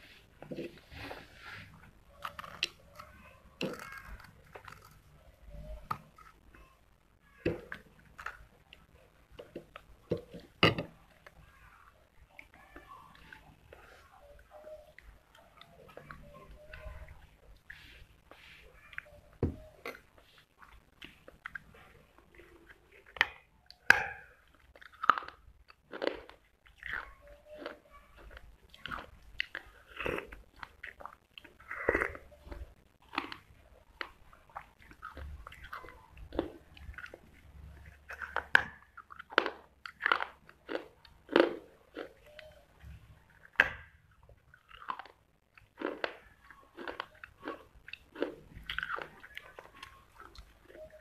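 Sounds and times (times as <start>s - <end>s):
grinding chews: 19.8s - 42.5s, 44.2s - 51.0s.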